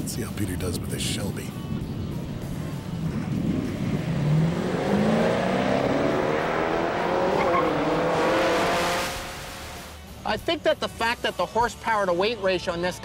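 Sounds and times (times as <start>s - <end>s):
car engine at full throttle: 2.1s - 10.1s.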